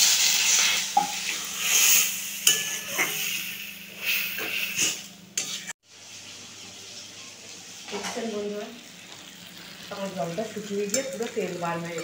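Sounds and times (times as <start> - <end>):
spatula scraping a metal wok: 0.0 - 7.0
pan sizzling: 0.0 - 12.0.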